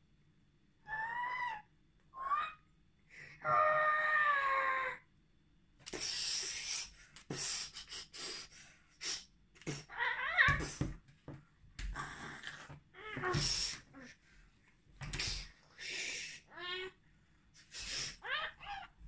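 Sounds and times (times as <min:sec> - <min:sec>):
child hissing: 0:13.2 - 0:14.0, 0:15.1 - 0:16.6, 0:17.6 - 0:18.7.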